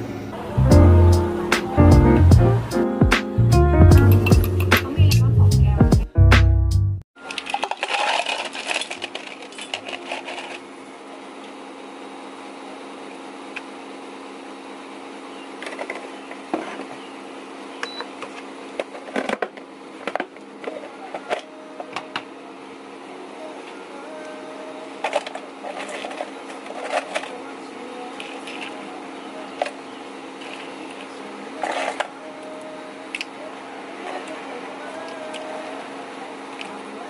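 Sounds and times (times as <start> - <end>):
steady low hum: 0.0 - 6.4
milk pouring over ice: 7.3 - 9.6
ice cubes clattering into cup: 7.3 - 10.6.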